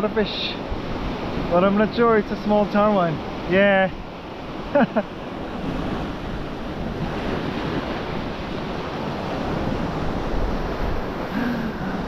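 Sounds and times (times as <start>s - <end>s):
waves breaking on sandy beach: 0.0s - 12.0s
wind buffeting microphone: 3.2s - 12.0s.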